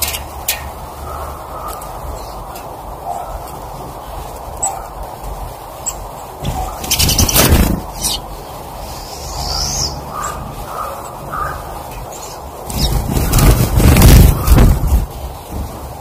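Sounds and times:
fluttering wings: 6.4s - 8.3s, 11.9s - 16.0s.

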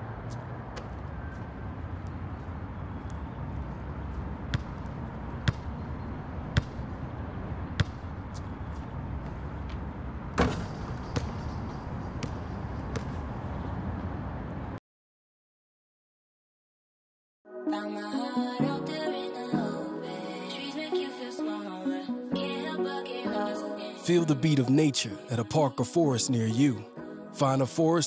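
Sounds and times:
low outdoor rumble: 0.1s - 14.8s
basketball bouncing on hard court: 4.5s - 7.0s, 7.7s - 13.2s.

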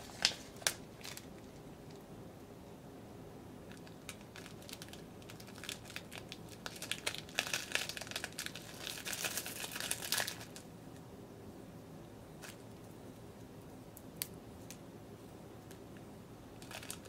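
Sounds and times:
food packaging crinkling: 0.0s - 2.0s, 3.7s - 10.6s, 16.6s - 17.0s.

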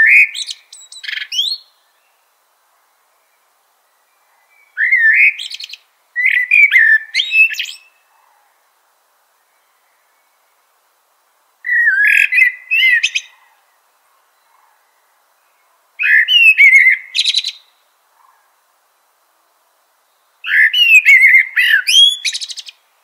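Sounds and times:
mockingbird singing: 16.0s - 17.7s, 20.4s - 22.8s.

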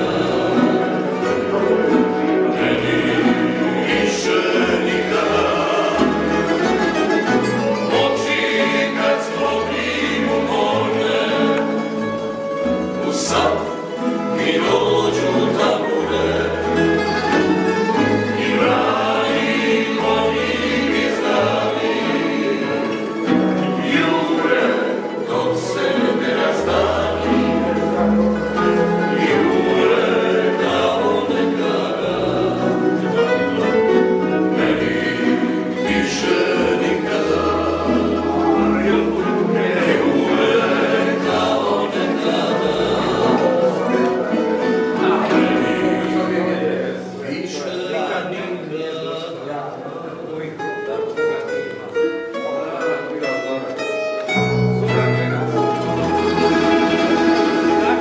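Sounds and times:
men singing in harmony: 0.0s - 49.5s, 55.8s - 58.0s
strummed string instruments: 0.0s - 49.7s, 50.3s - 58.0s
plucked bass notes: 54.1s - 58.0s.

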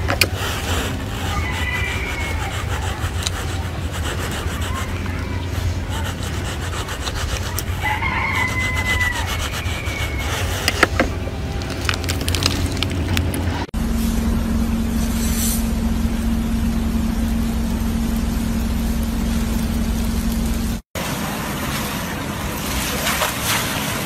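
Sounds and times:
steady low hum: 0.0s - 23.2s
rooster crowing: 1.2s - 3.0s, 7.7s - 10.7s.

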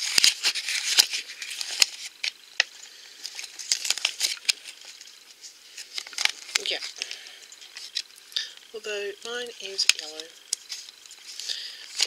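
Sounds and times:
plastic wrapper crinkling: 0.0s - 12.0s.

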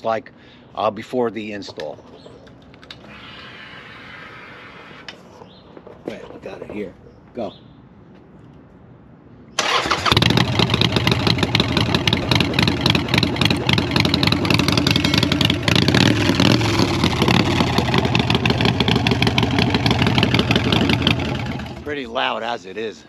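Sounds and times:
motorcycle engine running: 9.6s - 21.9s.

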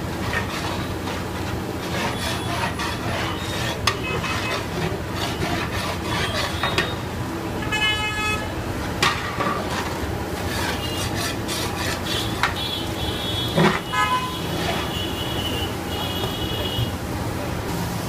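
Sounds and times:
metal spatula scraping pot: 0.1s - 7.0s, 9.1s - 12.6s
vehicle horn toot: 7.6s - 8.5s, 12.2s - 17.0s.

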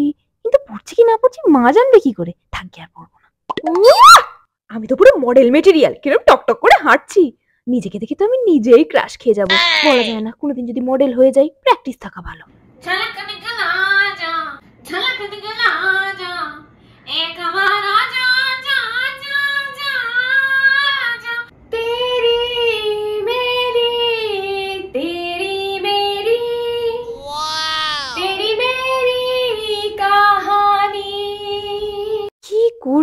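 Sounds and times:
woman singing unaccompanied: 12.8s - 27.1s, 28.2s - 32.3s.

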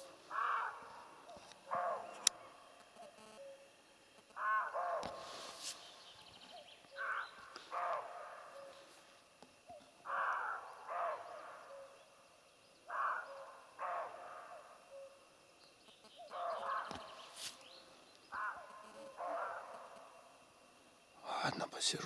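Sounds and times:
deer barking: 1.7s - 2.2s, 4.4s - 5.3s, 7.0s - 8.8s, 10.1s - 11.9s, 12.9s - 14.7s, 18.3s - 20.0s.

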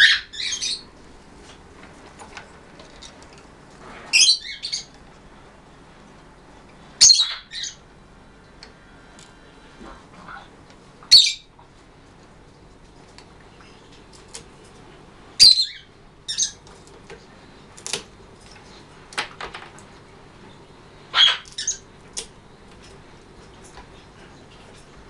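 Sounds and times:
macaw squawking and clicking: 21.1s - 22.3s.

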